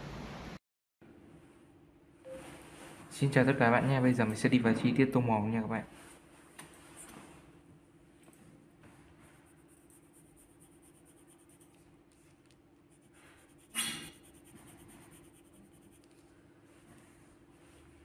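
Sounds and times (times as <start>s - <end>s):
faint steady hum: 0.0s - 18.0s
pencil scratching on paper: 9.2s - 16.3s.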